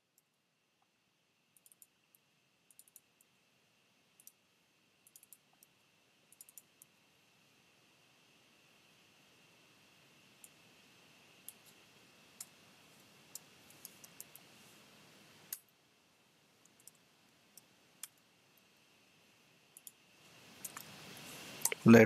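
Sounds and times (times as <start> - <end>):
low hiss: 0.0 - 22.0
keyboard and mouse clicks: 1.6 - 2.0, 2.7 - 3.3, 4.2 - 4.4, 5.0 - 5.7, 6.3 - 6.9, 13.3 - 14.5, 16.6 - 17.0, 19.7 - 20.0.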